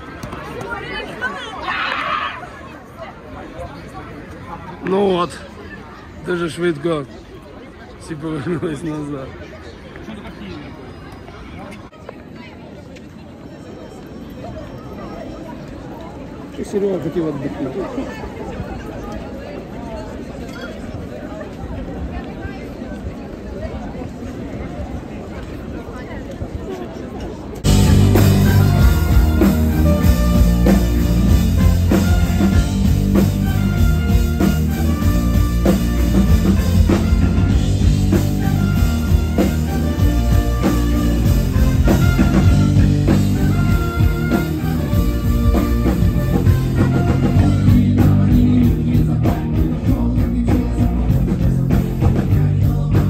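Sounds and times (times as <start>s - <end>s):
live rock band playing: 27.6s - 53.0s
person singing: 47.4s - 53.0s.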